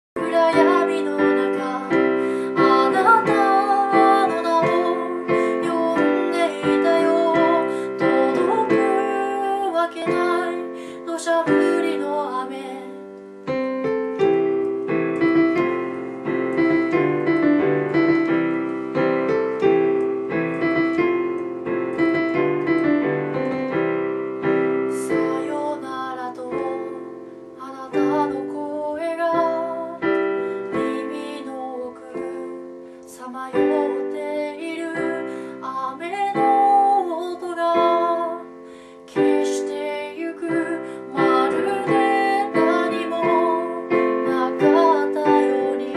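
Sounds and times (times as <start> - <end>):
woman singing: 0.2 - 13.6, 24.5 - 45.9
electronic keyboard piano chords: 0.2 - 45.9.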